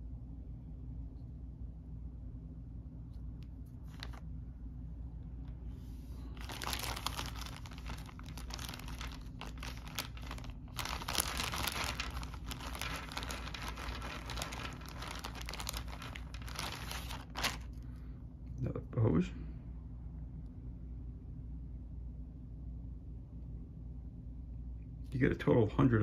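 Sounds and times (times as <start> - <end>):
plastic bag crinkling: 6.3 - 17.8.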